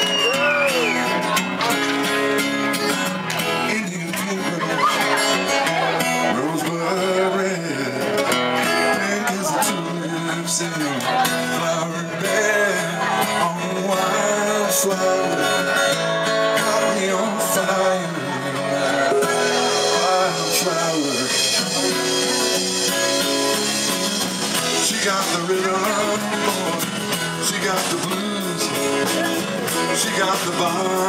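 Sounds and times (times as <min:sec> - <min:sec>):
bass guitar: 0:00.0 - 0:31.0
electric guitar: 0:00.0 - 0:31.0
drum kit: 0:16.6 - 0:31.0.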